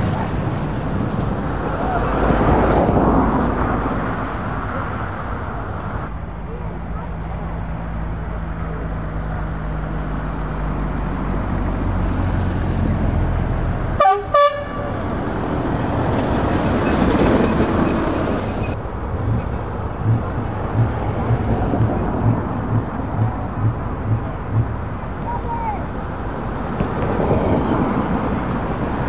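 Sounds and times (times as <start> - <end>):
heavy truck engines driving past: 0.0 - 29.0
truck horn blasts: 14.0 - 15.0
low regular pulsing: 19.1 - 25.1.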